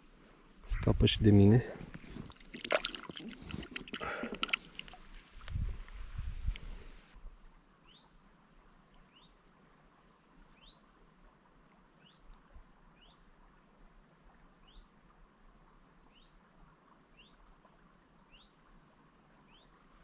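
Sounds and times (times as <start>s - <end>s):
water splashing: 2.0s - 6.0s.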